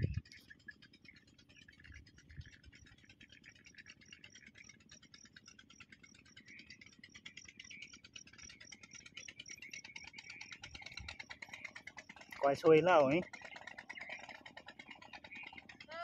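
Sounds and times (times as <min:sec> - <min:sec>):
low rumble: 0:00.0 - 0:00.3
faint high-pitched pulsing: 0:00.0 - 0:16.0.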